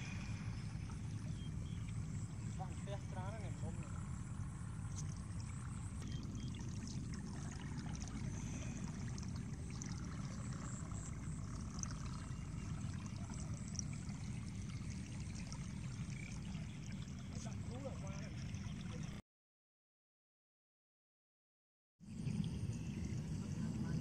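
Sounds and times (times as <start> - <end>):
shallow water trickling: 0.0 - 19.2.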